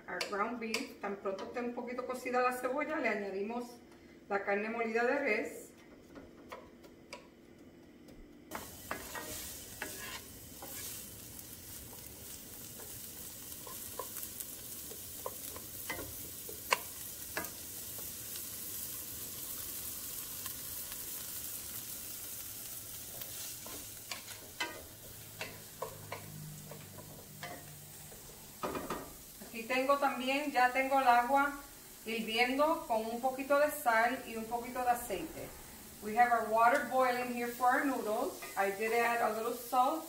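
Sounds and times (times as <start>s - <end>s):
onions sizzling in frying pan: 8.5s - 40.0s
wooden spatula scraping pan: 8.6s - 11.0s.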